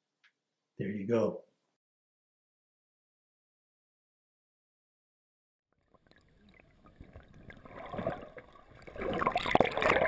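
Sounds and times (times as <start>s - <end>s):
river water sloshing and gurgling: 6.9s - 10.0s.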